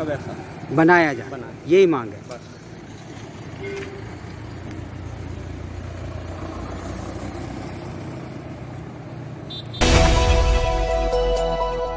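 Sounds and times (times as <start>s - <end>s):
street noise: 0.0s - 11.9s
loud music: 9.8s - 11.9s.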